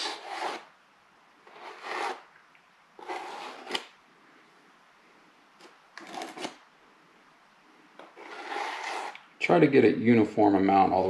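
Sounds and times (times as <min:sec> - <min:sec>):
drywall knife scraping compound: 0:00.0 - 0:00.7, 0:01.4 - 0:02.3, 0:03.0 - 0:03.8, 0:06.0 - 0:06.6, 0:08.0 - 0:09.2.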